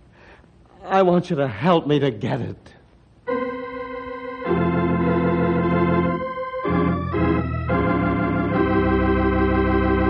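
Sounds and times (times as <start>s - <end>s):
organ chords: 3.1s - 10.0s.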